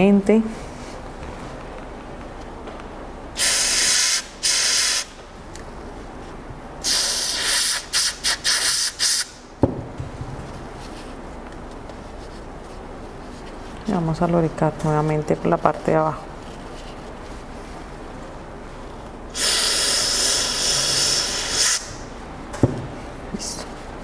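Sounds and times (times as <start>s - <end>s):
aerosol spray hissing: 3.4s - 5.1s, 6.8s - 9.3s, 19.4s - 22.0s.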